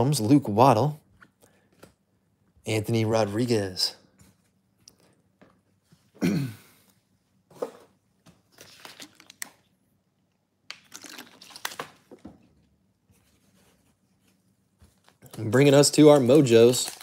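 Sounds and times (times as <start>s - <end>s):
person clearing throat: 6.2s - 6.8s
foil wrapper crinkling and tearing: 10.9s - 12.0s, 15.3s - 17.0s.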